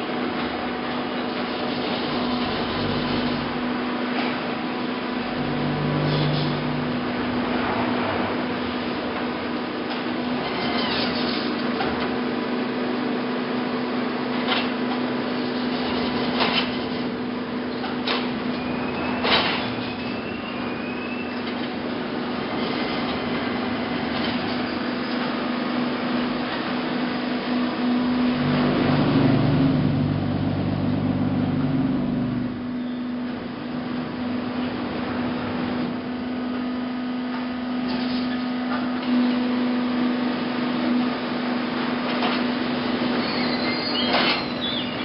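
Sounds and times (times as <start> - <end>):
machinery hum: 0.0 - 45.0
deep motor drone: 5.0 - 9.3, 27.2 - 37.4
faint rising squeal: 18.5 - 21.5, 43.1 - 45.0.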